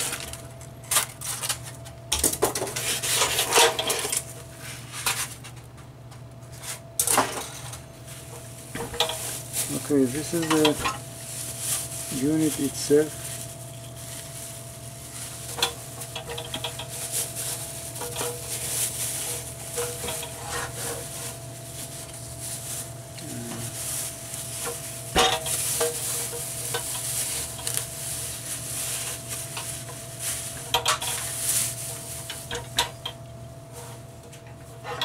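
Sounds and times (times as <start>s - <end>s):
plastic bag crinkling: 0.0s - 1.8s, 7.5s - 33.2s.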